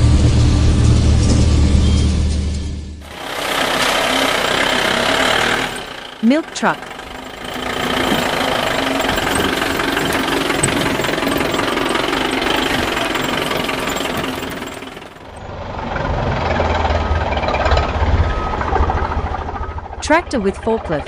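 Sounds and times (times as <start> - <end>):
deeper engine sound: 0.0 - 21.0
truck engine with rattling knock: 3.0 - 21.0.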